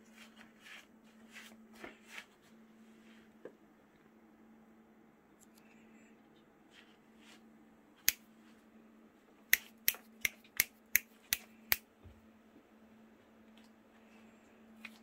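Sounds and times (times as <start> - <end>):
finger snaps: 8.0 - 8.2, 9.5 - 11.9.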